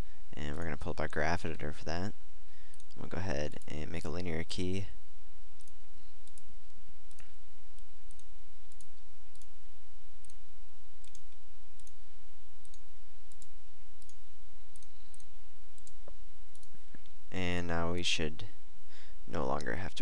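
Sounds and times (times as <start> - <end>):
low electrical hum: 0.0 - 20.0
computer mouse clicking: 7.1 - 9.5, 11.0 - 12.0, 12.6 - 16.8.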